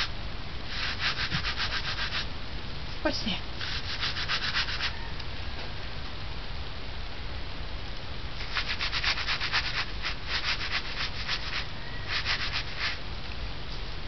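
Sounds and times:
paws scratching cardboard: 0.7 - 2.2.

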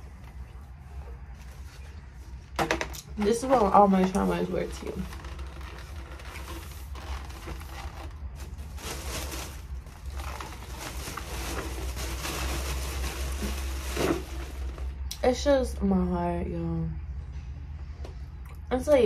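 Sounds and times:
rustling and handling noises: 0.0 - 15.1.

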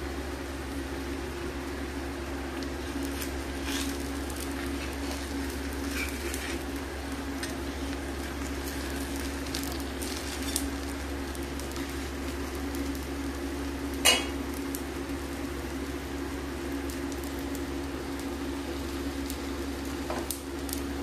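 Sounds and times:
batter sizzling on a griddle: 0.0 - 21.0
steady low hum: 0.0 - 21.0.

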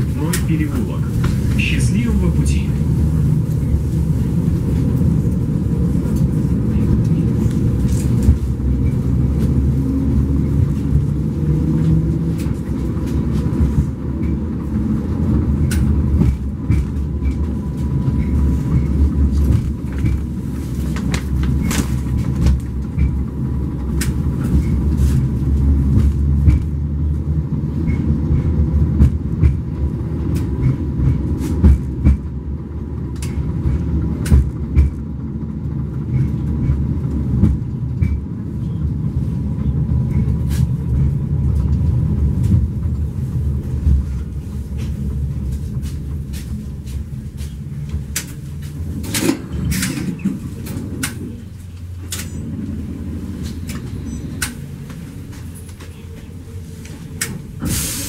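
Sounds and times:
tram rumbling on track: 0.0 - 58.0
sharp clicks and knocks: 36.0 - 38.3.

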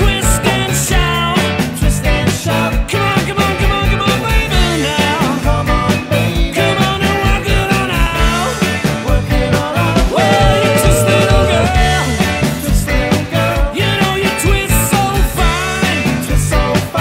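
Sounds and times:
electric bass guitar: 0.0 - 17.0
keyboard: 0.0 - 17.0
drum kit beat: 3.0 - 16.9
gliding melody line: 10.2 - 12.2.

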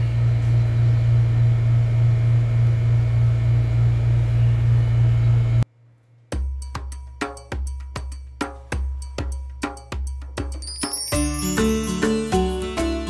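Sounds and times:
music with drum and wood-block beats: 6.3 - 13.0.

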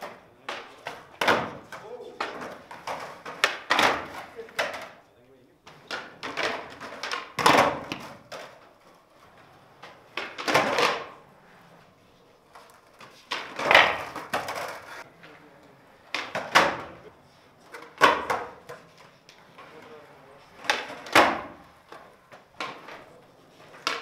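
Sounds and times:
skateboard tail pops: 0.0 - 4.9, 5.7 - 8.6, 12.6 - 14.8, 16.1 - 17.0, 17.7 - 19.0, 20.6 - 22.0
skateboard landing clacks: 0.0 - 5.0, 5.7 - 8.8, 9.8 - 11.2, 12.5 - 15.1, 16.1 - 17.0, 17.7 - 19.6, 20.6 - 24.0
skateboard wheels rolling: 0.0 - 5.0, 5.6 - 24.0.

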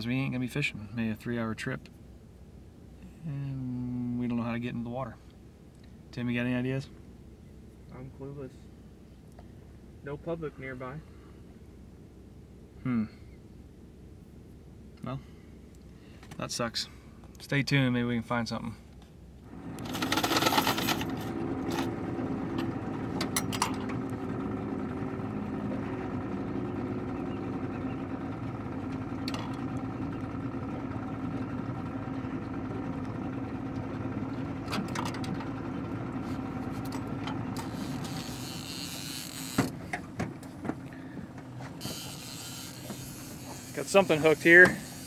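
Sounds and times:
boat motor running: 19.4 - 45.0.

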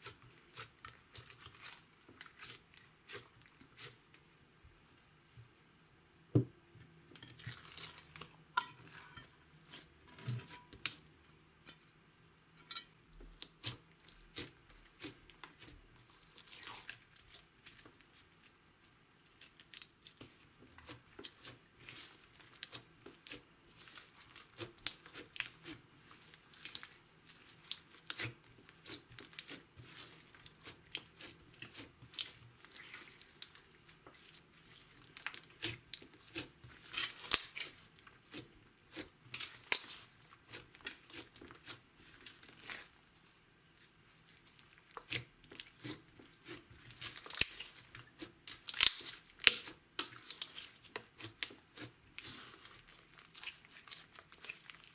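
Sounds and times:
slime sticky clicks and crackles: 37.0 - 37.8, 47.1 - 52.3.

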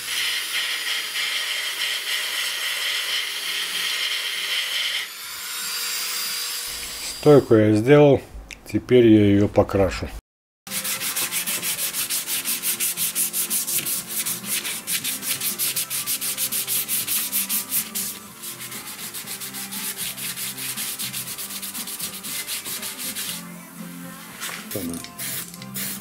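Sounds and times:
hand sanding metal: 10.7 - 23.4.

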